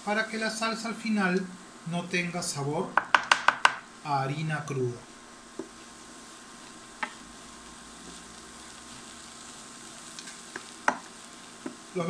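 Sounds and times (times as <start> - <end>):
vegetables sizzling in a pan: 0.0 - 12.0
wooden spoon knocking on pan: 3.0 - 3.8, 5.5 - 5.8, 7.0 - 7.2, 10.5 - 11.8.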